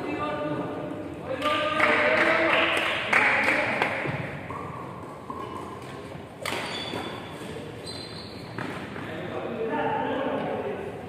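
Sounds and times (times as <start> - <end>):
racket hitting shuttlecock: 5.3 - 7.3.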